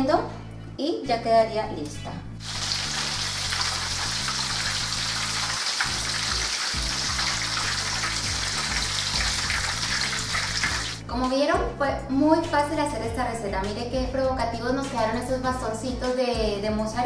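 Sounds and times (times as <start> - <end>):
oil sizzling in a frying pan: 2.4 - 11.0.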